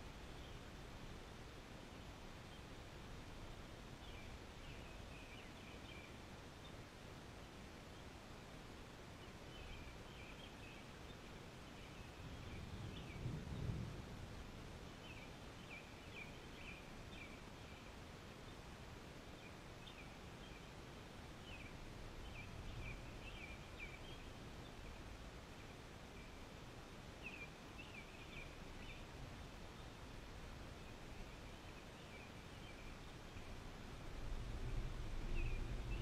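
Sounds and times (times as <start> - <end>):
birds chirping faintly: 0.0 - 36.0
low rumble: 34.0 - 36.0.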